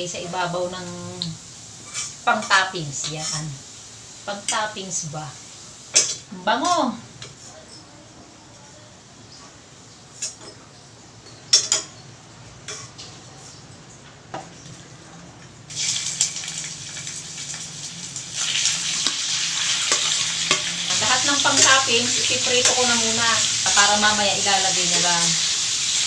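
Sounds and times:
meat sizzling in hot oil: 0:00.0 - 0:07.2, 0:15.7 - 0:26.0.

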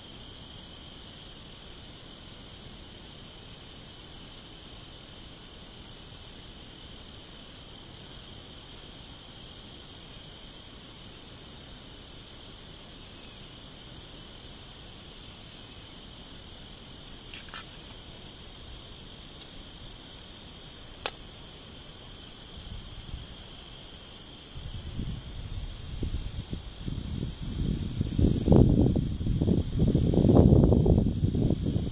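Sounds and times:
insects trilling: 0:00.0 - 0:31.9.

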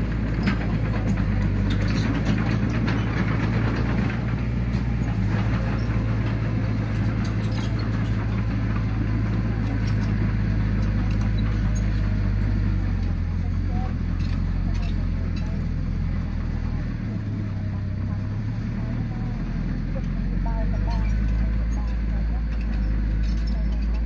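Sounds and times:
diesel engine running: 0:00.0 - 0:24.0
light clicks and rattles: 0:14.0 - 0:15.8, 0:20.8 - 0:24.0.

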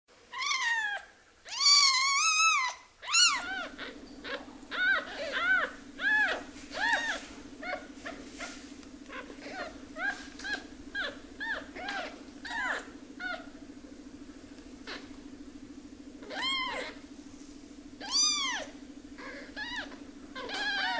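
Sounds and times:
kittens crying: 0:00.3 - 0:08.2, 0:09.1 - 0:13.6, 0:14.8 - 0:15.1, 0:16.2 - 0:17.0, 0:18.0 - 0:20.9.

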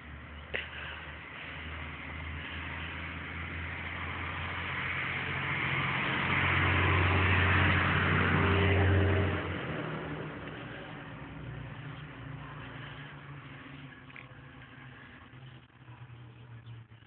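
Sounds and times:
tractor diesel engine running: 0:00.0 - 0:17.0.

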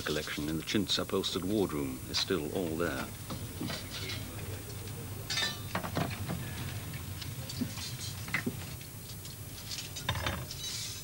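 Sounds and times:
silverware clinking: 0:05.3 - 0:05.9.

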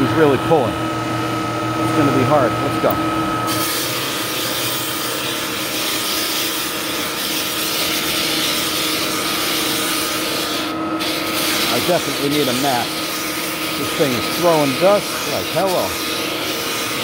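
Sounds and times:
floor sander grinding wood: 0:00.0 - 0:17.0.

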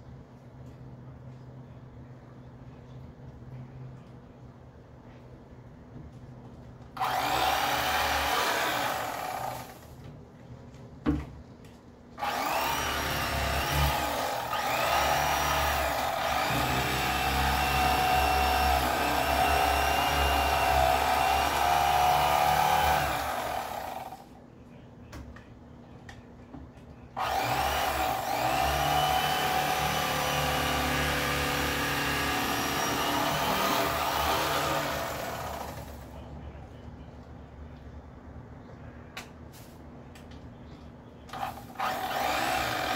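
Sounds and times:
electric knife motor buzz: 0:07.0 - 0:09.8, 0:12.2 - 0:24.2, 0:27.2 - 0:35.9, 0:41.4 - 0:42.9.

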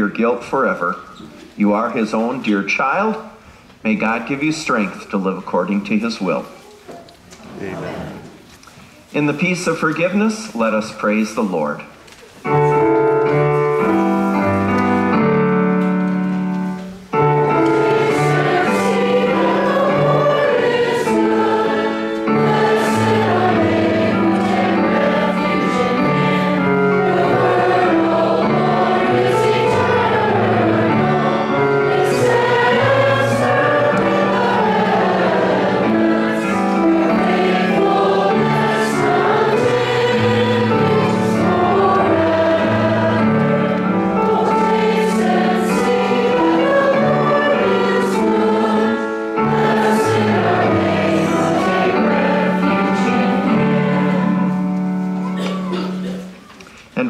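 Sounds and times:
congregation singing a hymn: 0:12.4 - 0:56.4
instrumental accompaniment chords: 0:12.5 - 0:56.5.

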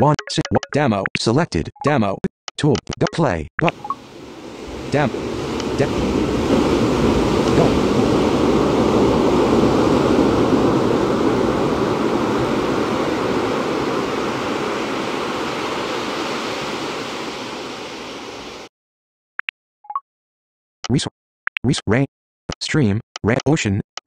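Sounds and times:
surf-like ocean noise: 0:03.7 - 0:18.7.

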